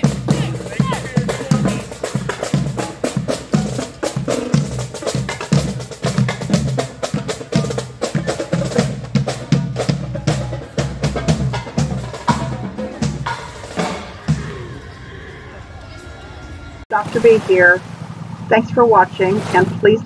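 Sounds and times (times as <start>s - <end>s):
bass drum beats: 0.0s - 14.7s.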